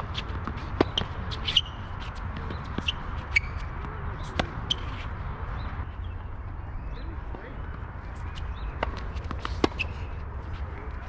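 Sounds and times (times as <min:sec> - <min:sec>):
tennis ball bouncing on court: 0:00.0 - 0:05.0, 0:08.7 - 0:10.0
tennis ball struck by racket: 0:00.1 - 0:01.7, 0:04.2 - 0:05.0, 0:08.8 - 0:10.0.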